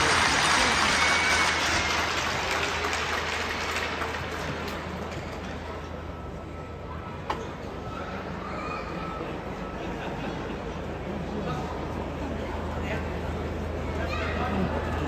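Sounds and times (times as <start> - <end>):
crowd applauding: 0.0 - 5.8.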